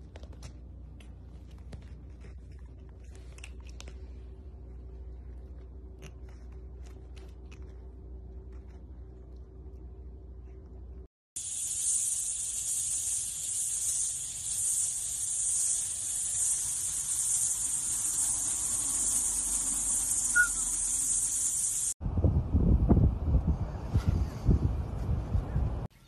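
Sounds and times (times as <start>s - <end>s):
high-pitched hiss: 11.4s - 22.0s
short chirp: 20.0s - 21.8s.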